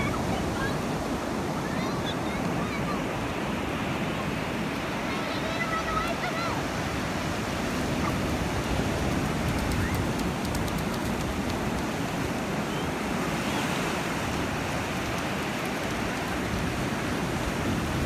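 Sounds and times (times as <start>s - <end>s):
waves washing up a beach: 0.0s - 18.0s
wind on microphone: 6.7s - 18.0s.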